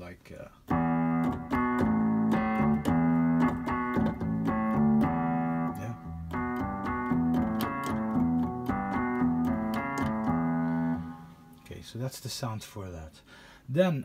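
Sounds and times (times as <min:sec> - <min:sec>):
electric piano bass: 0:00.6 - 0:11.6
organ playing held chords: 0:00.7 - 0:11.6.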